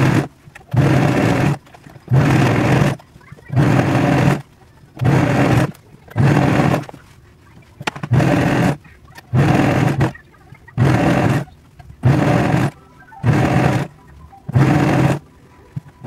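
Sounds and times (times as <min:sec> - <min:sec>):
overlock sewing machine running: 0:00.0 - 0:07.0, 0:07.9 - 0:10.2, 0:10.8 - 0:13.9, 0:14.5 - 0:15.2.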